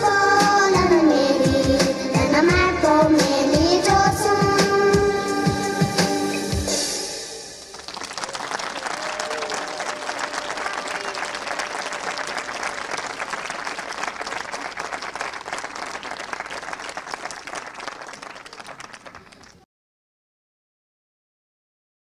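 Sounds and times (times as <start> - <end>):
audience applauding: 7.6 - 19.6.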